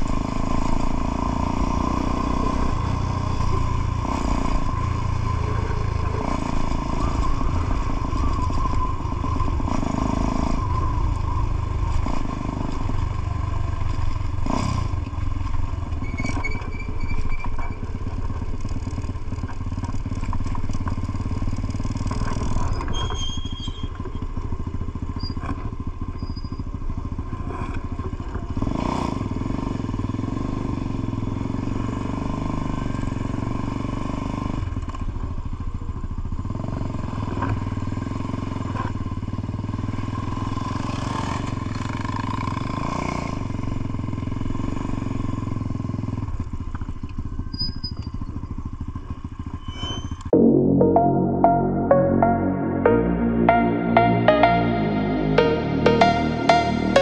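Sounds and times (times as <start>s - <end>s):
motorcycle engine running: 0.0s - 16.0s, 17.8s - 22.8s
brief high-pitched tones: 50.4s - 57.0s.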